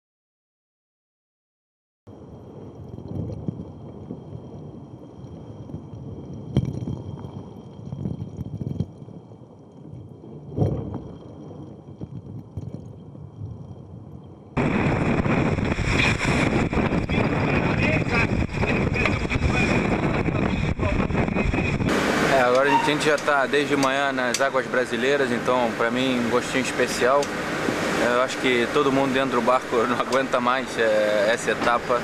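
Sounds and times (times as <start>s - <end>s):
loud rushing wind and spray: 14.6s - 32.0s.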